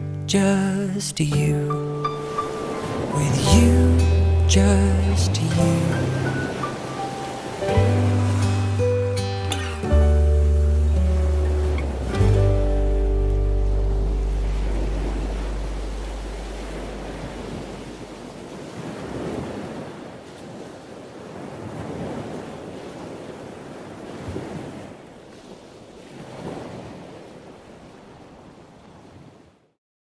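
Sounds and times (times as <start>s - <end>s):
sea surf washing onto beach: 0.6s - 29.6s
low background music note: 1.3s - 18.3s
wind on microphone: 10.4s - 25.0s.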